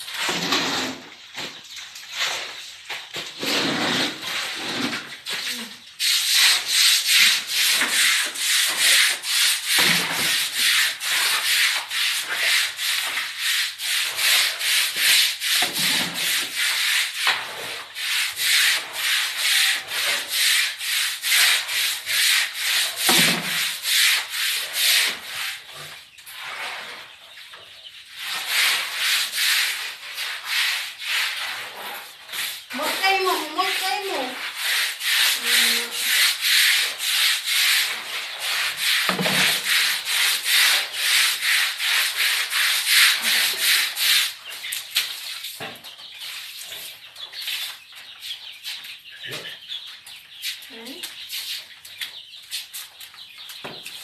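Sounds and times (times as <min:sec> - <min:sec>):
broom scrubbing wet concrete: 0:00.0 - 0:54.0.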